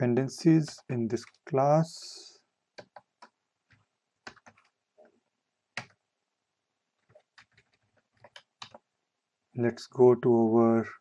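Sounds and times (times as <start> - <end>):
computer keyboard keystrokes: 2.8 - 4.7, 5.8 - 6.0, 7.0 - 8.8.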